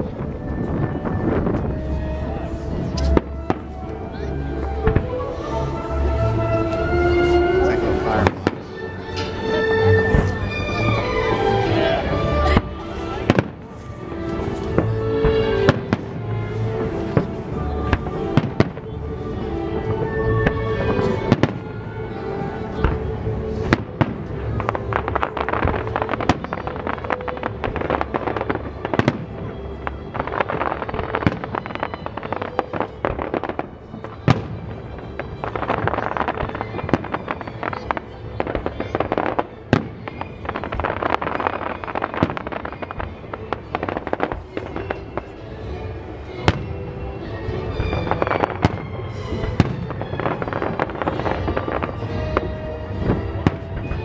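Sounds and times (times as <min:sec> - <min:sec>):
firework crackling: 0:00.0 - 0:54.0.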